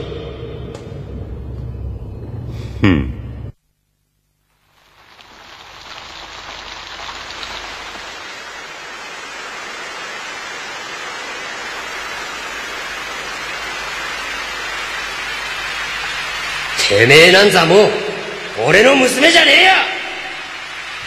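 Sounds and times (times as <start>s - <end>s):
steady rain falling: 4.2s - 21.0s.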